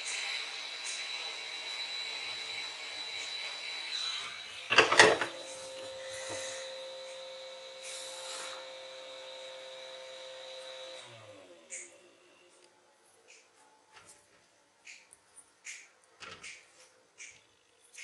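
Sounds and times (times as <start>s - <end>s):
steady high-pitched whine: 0.0s - 13.0s.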